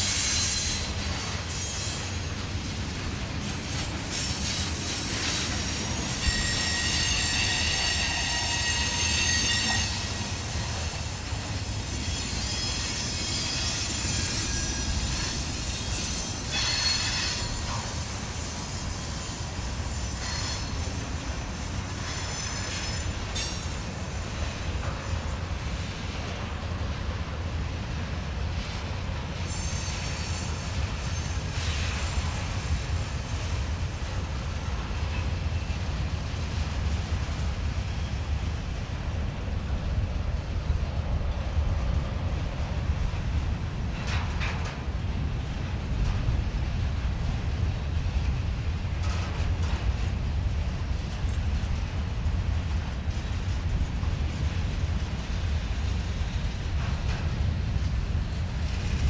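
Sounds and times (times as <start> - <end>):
train wheels rumbling on rail: 0.0 - 59.0
high-pitched wheel squeal: 6.0 - 10.7, 12.0 - 17.8, 29.5 - 31.9.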